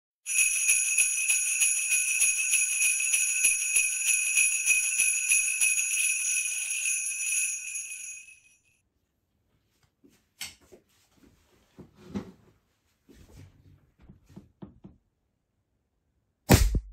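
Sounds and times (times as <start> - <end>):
jingle bells shaken: 0.3 - 8.7.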